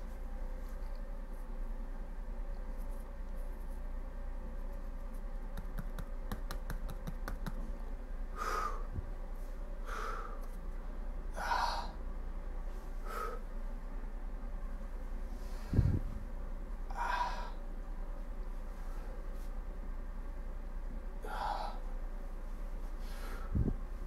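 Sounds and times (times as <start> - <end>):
steady low hum: 0.0 - 24.0
man's forceful breaths: 8.3 - 9.1, 9.7 - 10.6, 15.3 - 16.3, 22.9 - 23.8.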